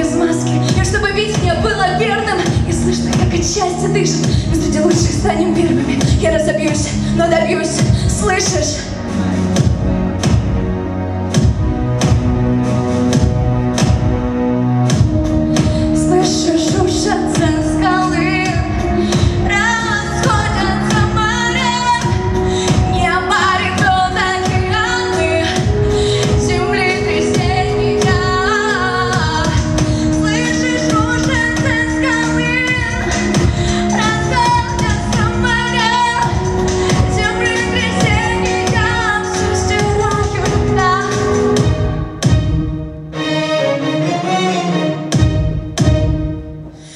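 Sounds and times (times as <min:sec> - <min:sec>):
woman singing pop vocals: 0:00.0 - 0:09.0, 0:15.6 - 0:42.0
backing music with steady beat: 0:00.0 - 0:46.9.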